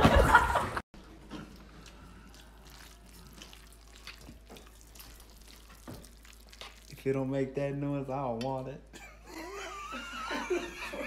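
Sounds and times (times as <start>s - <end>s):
burst of laughter: 0.0s - 0.8s.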